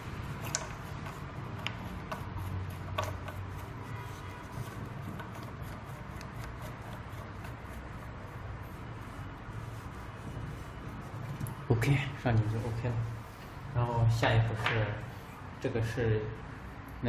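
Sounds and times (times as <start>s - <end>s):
rubbing by hand: 0.0s - 13.4s.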